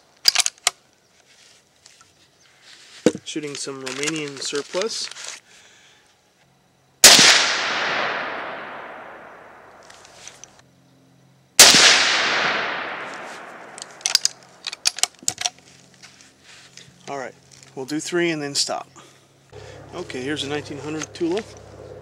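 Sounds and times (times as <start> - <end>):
rifle shots: 7.0 - 9.8, 11.6 - 14.5.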